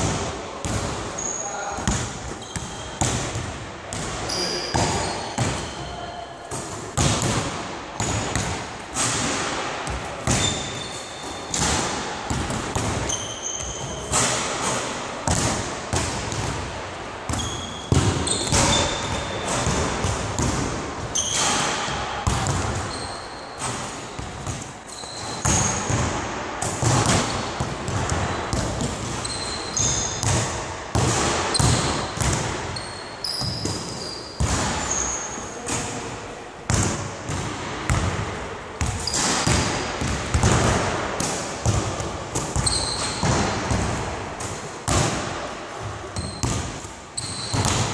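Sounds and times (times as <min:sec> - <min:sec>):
basketballs bouncing on hardwood: 0:00.0 - 0:01.0, 0:01.8 - 0:05.8, 0:06.5 - 0:16.7, 0:17.3 - 0:21.6, 0:22.2 - 0:34.9, 0:36.7 - 0:44.1, 0:44.9 - 0:47.9
shoes squeaking on floor: 0:01.1 - 0:03.1, 0:04.2 - 0:06.6, 0:10.3 - 0:11.7, 0:13.0 - 0:14.3, 0:17.3 - 0:19.7, 0:21.1 - 0:21.7, 0:22.7 - 0:25.9, 0:29.0 - 0:30.2, 0:32.7 - 0:35.6, 0:39.0 - 0:39.4, 0:42.5 - 0:43.4, 0:46.2 - 0:47.9.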